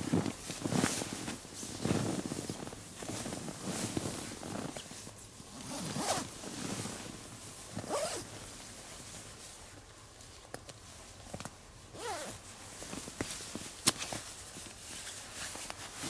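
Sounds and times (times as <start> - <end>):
fabric rustling: 0.0 - 16.0
sleeping bag zipper pulled: 5.6 - 6.3, 7.8 - 8.3, 12.0 - 12.4.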